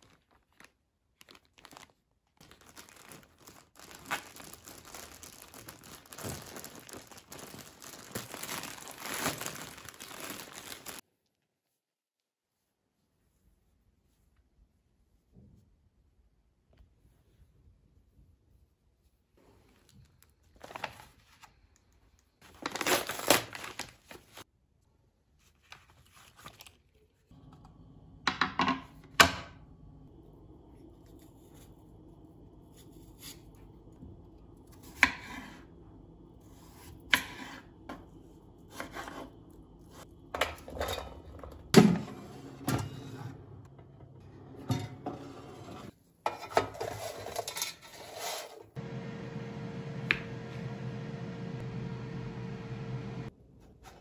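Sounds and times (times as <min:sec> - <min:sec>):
steady low hum: 0:48.8 - 0:53.3.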